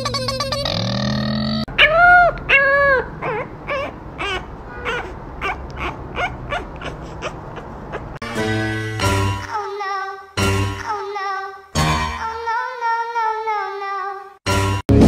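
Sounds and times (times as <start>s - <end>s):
puppy whining and yelping: 1.8s - 8.2s.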